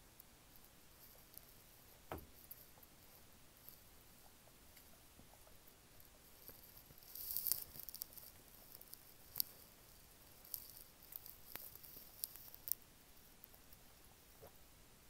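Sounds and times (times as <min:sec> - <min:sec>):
items rustling and crinkling: 0:06.4 - 0:12.8.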